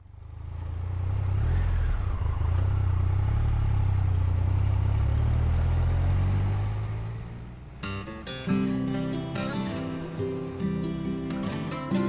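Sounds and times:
motorcycle engine running: 0.0s - 7.8s.

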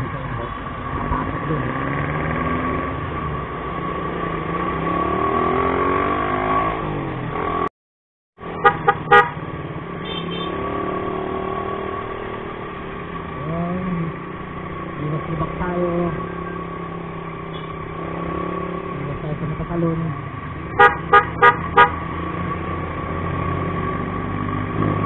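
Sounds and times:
motorcycle engine revving: 0.0s - 7.7s, 8.4s - 25.0s
road noise: 0.0s - 7.7s, 8.4s - 25.0s
vehicle horn honks: 8.6s - 9.4s, 10.0s - 10.6s, 20.8s - 22.0s.

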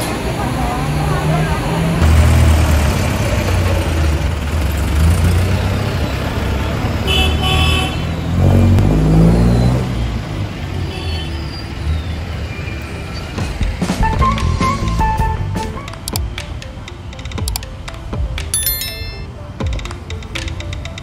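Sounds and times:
vehicle engines rumbling: 0.0s - 18.2s
engine revving: 8.2s - 10.1s.

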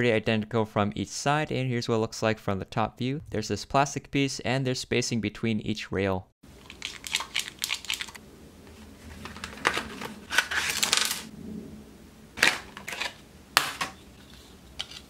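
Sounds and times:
plastic packaging crinkling rustle: 6.6s - 11.3s, 12.4s - 15.0s.

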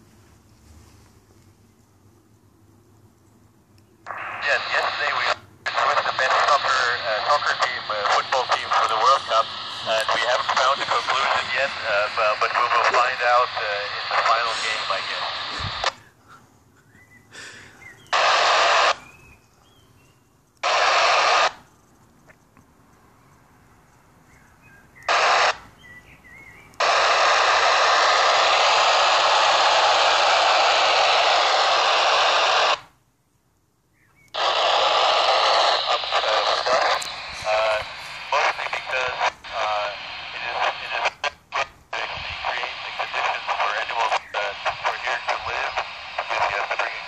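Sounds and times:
radio static hiss bursts: 4.0s - 16.4s, 17.3s - 19.4s, 20.6s - 22.0s, 25.0s - 25.8s, 26.7s - 33.0s, 34.3s - 47.0s.

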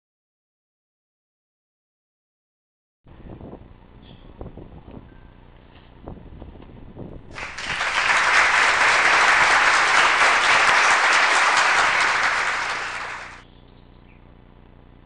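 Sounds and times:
applause: 7.2s - 13.4s.

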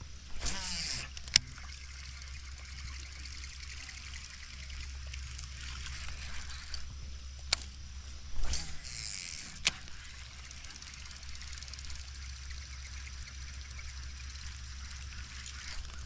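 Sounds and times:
fishing reel ticking: 0.3s - 7.8s, 8.4s - 16.0s.

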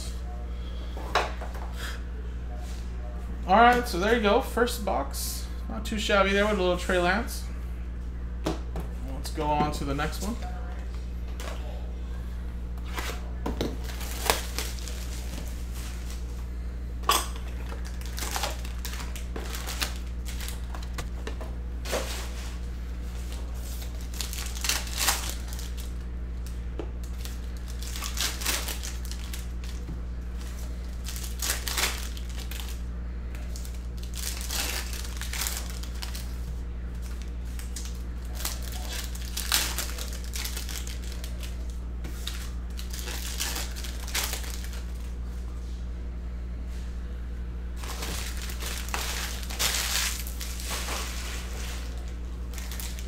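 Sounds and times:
steady low hum: 0.0s - 53.0s
foil wrappers crinkling and tearing: 13.8s - 16.3s, 17.5s - 21.1s, 21.8s - 45.1s, 47.8s - 53.0s.

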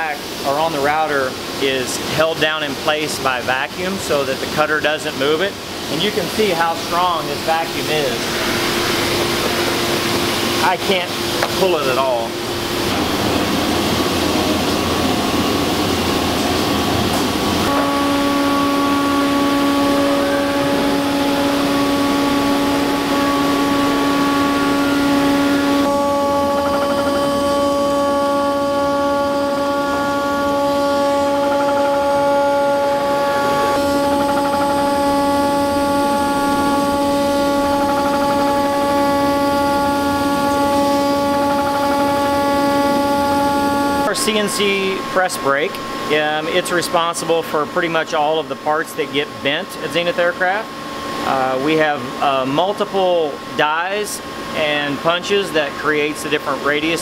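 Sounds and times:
high spindle whine: 0.0s - 57.0s
rushing noise: 5.8s - 17.7s.

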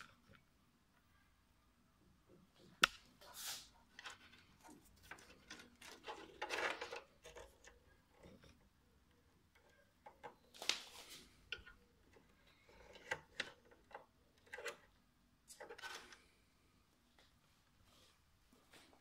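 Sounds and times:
cable rustling: 2.6s - 8.8s.

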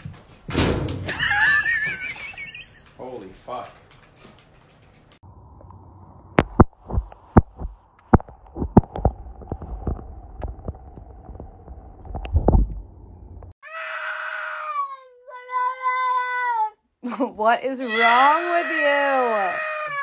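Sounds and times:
low rumble: 5.2s - 13.5s
cat yowling: 13.6s - 16.8s, 17.8s - 20.0s.

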